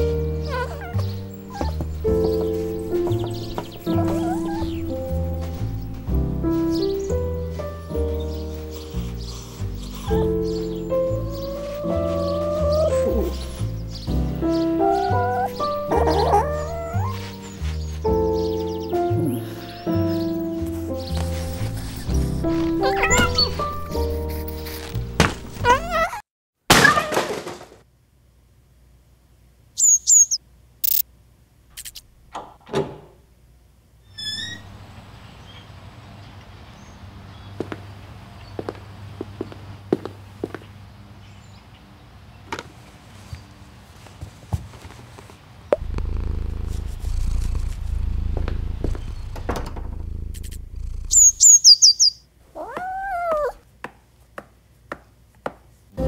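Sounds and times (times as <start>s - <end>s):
high bird chirps: 0.0s - 7.1s, 8.1s - 20.4s, 22.8s - 23.8s, 29.8s - 31.0s, 50.3s - 52.2s
cat meowing: 0.2s - 1.9s, 3.8s - 5.0s, 9.9s - 13.8s, 14.8s - 17.5s, 22.8s - 23.7s, 25.6s - 26.2s, 50.8s - 53.6s
low steady hum: 45.7s - 51.4s.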